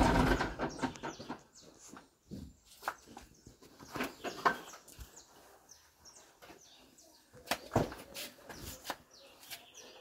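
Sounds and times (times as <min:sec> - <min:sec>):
knocks and clatters of material: 0:00.0 - 0:05.1
birds chirping: 0:00.0 - 0:10.0.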